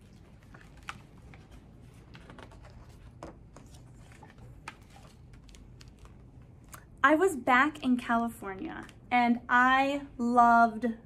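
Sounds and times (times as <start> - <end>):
book pages rustling: 0.0 - 6.8.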